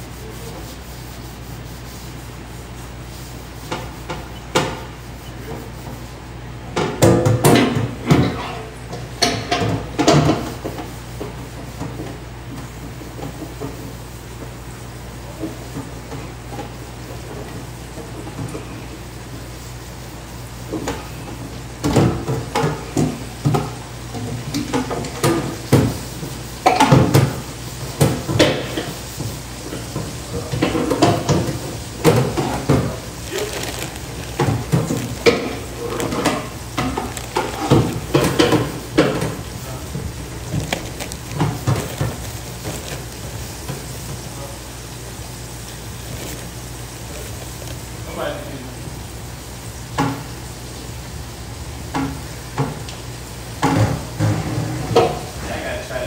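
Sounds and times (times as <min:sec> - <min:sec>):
deep-frying sizzle: 0:09.1 - 0:55.6
plastic bag rustling: 0:30.9 - 0:44.3, 0:45.6 - 0:48.2.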